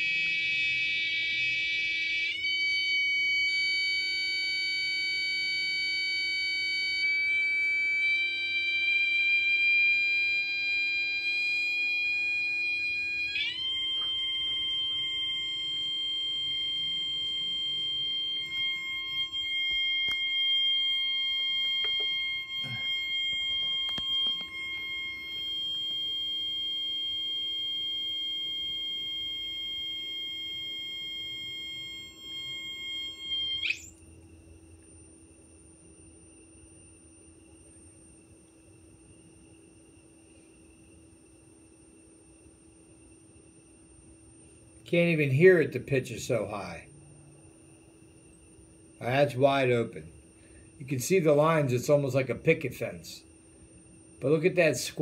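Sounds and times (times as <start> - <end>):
buzzy electronic tone: 0.0 - 33.9.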